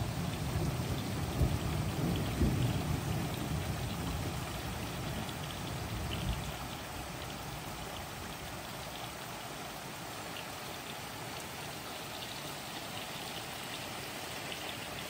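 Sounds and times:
low rumble of thunder: 0.0 - 7.7
raindrops ticking: 0.0 - 15.0
steady rain falling: 0.0 - 15.0.

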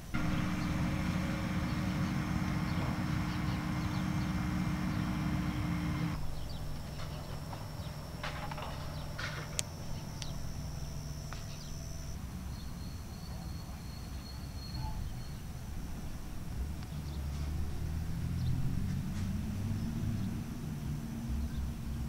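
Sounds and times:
insects trilling: 0.0 - 16.1.

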